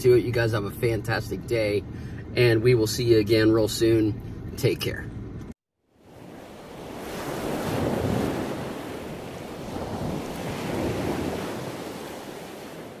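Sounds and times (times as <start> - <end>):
ocean waves washing in: 5.9 - 13.0.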